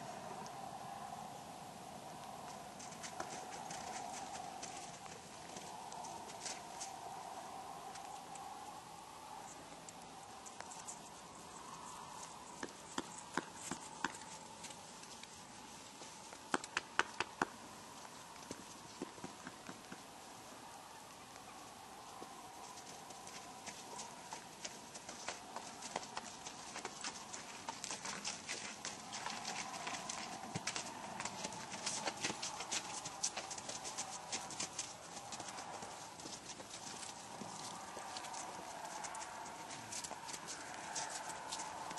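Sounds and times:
faint steady hum: 0:00.0 - 0:41.9
hoofbeats on snow: 0:02.8 - 0:06.9, 0:22.2 - 0:41.9
horse hooves knocking on icy ground: 0:12.6 - 0:15.2, 0:18.4 - 0:20.1, 0:22.9 - 0:41.9.

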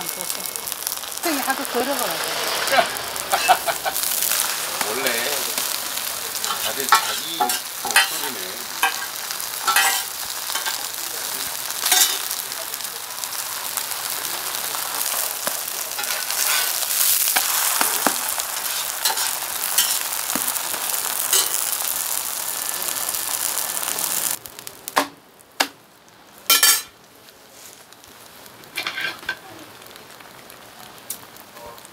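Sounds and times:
pancake sizzling in oil: 0:00.0 - 0:31.9
metal spatula tapping and scraping: 0:06.5 - 0:08.2, 0:09.7 - 0:10.0.

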